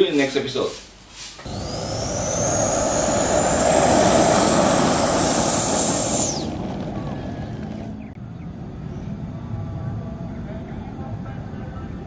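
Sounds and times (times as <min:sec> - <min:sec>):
outdoor background: 0:00.0 - 0:12.0
electric ducted fan whining: 0:01.4 - 0:08.2.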